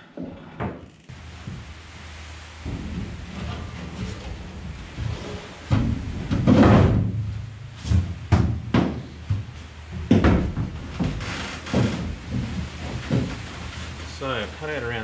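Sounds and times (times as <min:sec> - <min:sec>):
heavy rain: 0:01.1 - 0:15.0
hollow knocks of plywood panel: 0:07.9 - 0:13.3.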